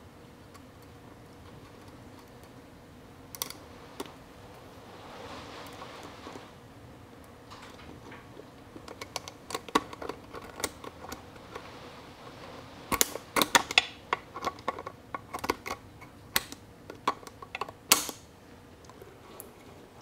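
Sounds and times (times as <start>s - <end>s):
snap ring clicking and snapping: 15.3s - 18.2s.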